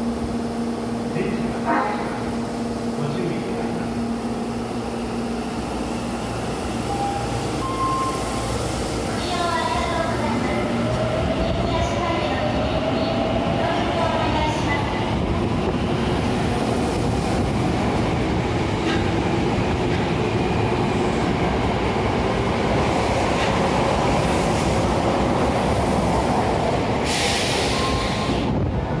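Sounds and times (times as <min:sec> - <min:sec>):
burst of hiss: 0:27.0 - 0:28.4.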